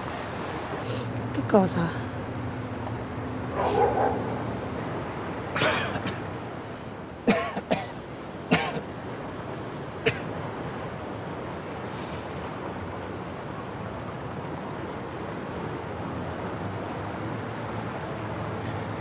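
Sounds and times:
person coughing: 5.6 - 6.2, 7.3 - 8.8.

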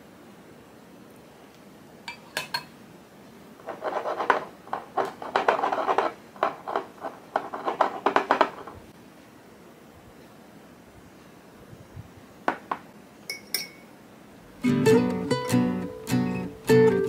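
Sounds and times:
glass tapping and rubbing on table: 3.7 - 8.6
metal spoon clinking on glass: 13.3 - 13.9.

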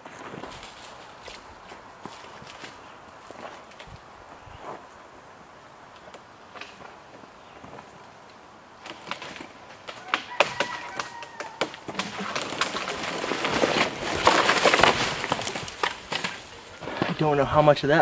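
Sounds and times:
tree trunk cracking and snapping: 8.8 - 17.3
tree crashing through branches: 8.8 - 17.6.

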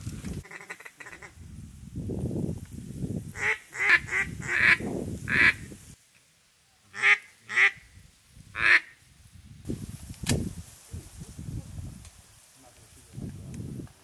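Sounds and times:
duck quacks: 0.4 - 1.3, 3.4 - 5.6, 6.9 - 7.8, 8.6 - 8.9.

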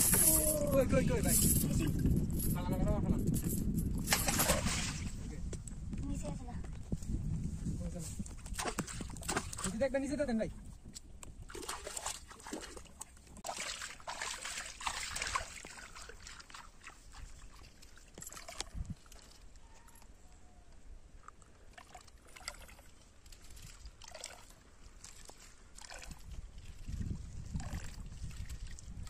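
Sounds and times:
water splashing around chain: 0.0 - 5.2, 8.5 - 9.9, 11.4 - 20.1, 21.2 - 29.0.

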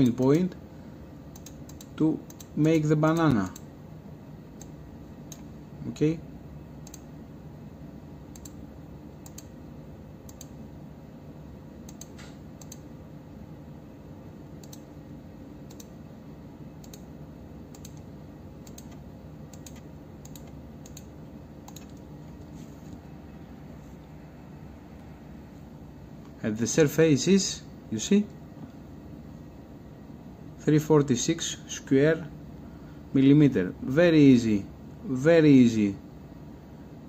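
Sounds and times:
computer mouse clicks: 1.3 - 2.6, 3.2 - 3.7, 4.6 - 5.5, 6.8 - 7.1, 8.3 - 8.6, 9.2 - 9.5, 10.3 - 10.6, 11.8 - 12.9, 14.6 - 14.9, 15.7 - 16.0, 16.8 - 17.1, 17.7 - 22.5.

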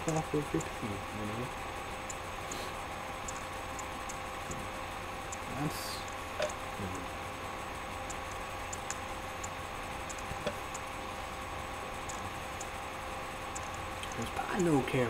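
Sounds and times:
low hum: 0.0 - 15.0
faint small ticks: 2.0 - 2.2, 3.2 - 4.7, 5.3 - 6.6, 8.0 - 10.9, 12.0 - 12.8, 13.5 - 14.7.

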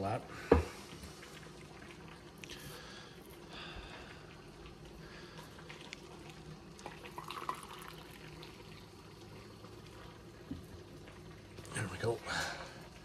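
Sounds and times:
hot water pouring and trickling: 0.0 - 13.0.

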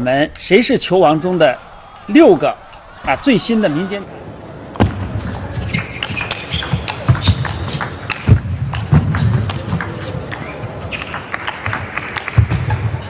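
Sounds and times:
low background noise: 0.0 - 13.0
table tennis ball clicking: 5.6 - 13.0.

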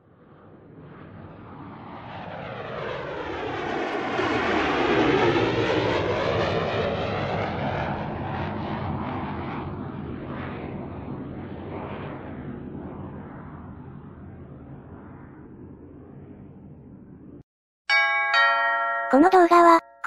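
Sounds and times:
propeller plane flyby: 0.1 - 17.4.

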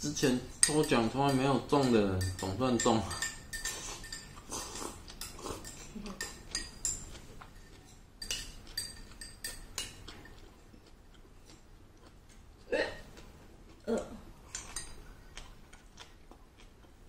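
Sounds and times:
chopsticks clinking on ceramic bowl: 0.5 - 10.8, 14.5 - 15.5.

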